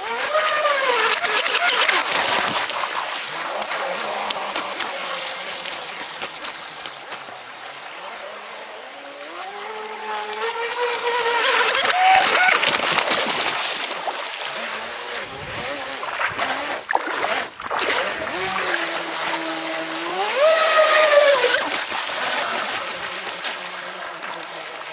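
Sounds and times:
boat hull skipping across waves: 0.1s - 24.9s
electric motor whining: 8.3s - 12.8s, 14.5s - 24.8s.

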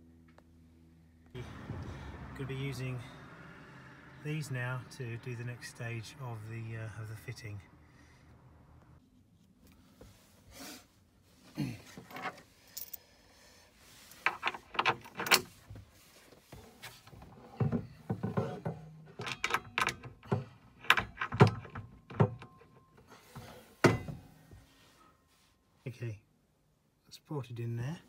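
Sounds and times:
bolts and washers clattering: 11.9s - 13.0s, 14.1s - 15.7s, 17.1s - 24.4s.

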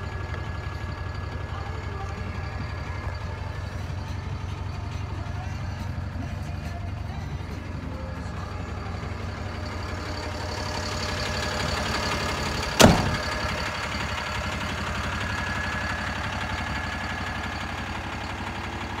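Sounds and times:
diesel truck idling: 0.0s - 19.0s
cab door slamming: 12.8s - 13.4s.

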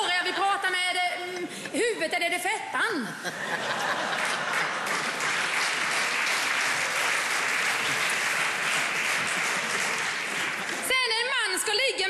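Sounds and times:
audience applauding: 3.7s - 10.9s.

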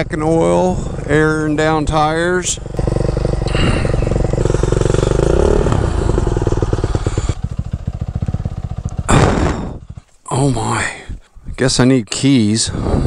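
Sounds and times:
dirt bike engine idling: 0.0s - 11.0s.

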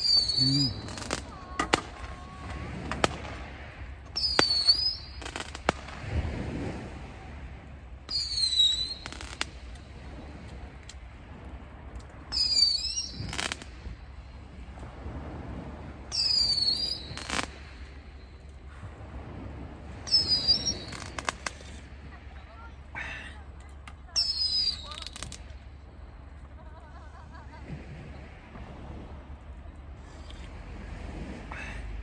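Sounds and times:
bird calling: 0.0s - 2.4s, 20.1s - 21.1s.

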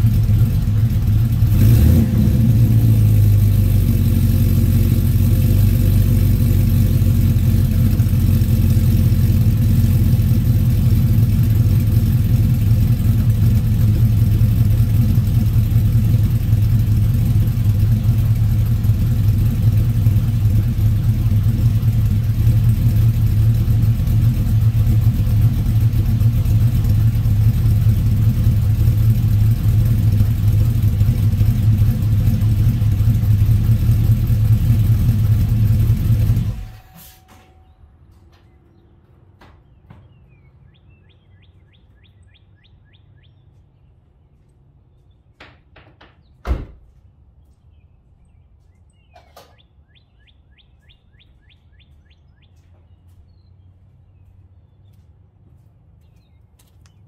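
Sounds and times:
car engine running: 0.0s - 37.4s
birds chirping: 37.4s - 57.0s
thump: 45.4s - 46.8s.

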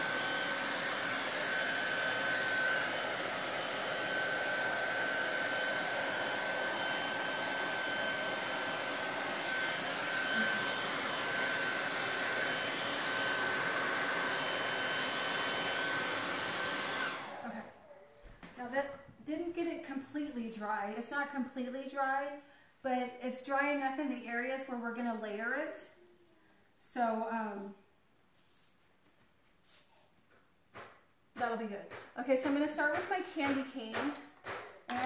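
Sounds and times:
hair dryer running: 0.0s - 18.5s, 31.9s - 35.0s.

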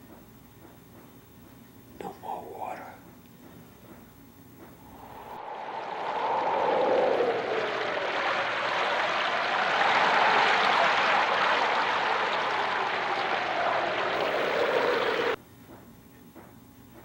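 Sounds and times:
hollow drifting tone: 4.9s - 15.4s
wind rushing: 4.9s - 15.4s
choppy water: 5.0s - 15.4s.

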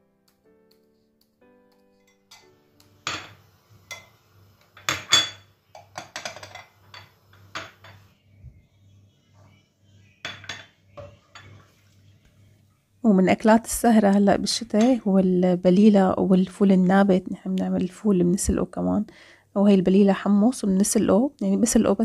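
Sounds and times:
glass bowls clinking on countertop: 2.0s - 4.2s, 4.8s - 8.1s, 10.2s - 11.7s.

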